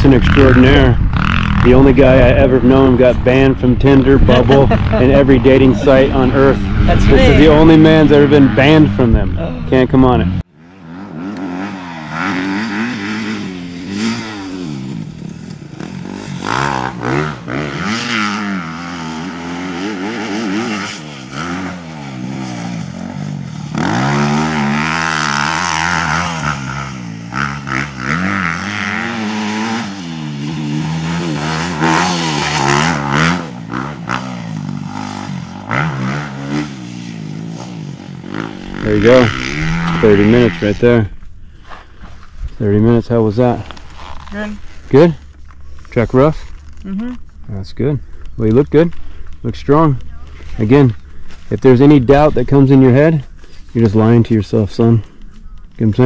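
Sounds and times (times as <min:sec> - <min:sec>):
dirt bike engine revving: 0:00.0 - 0:41.3.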